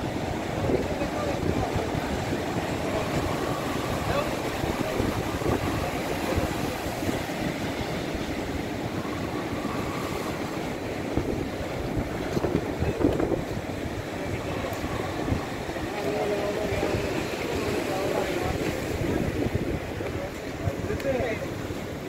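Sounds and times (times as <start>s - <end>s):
surf breaking: 0.0s - 22.0s
wind buffeting microphone: 0.0s - 22.0s.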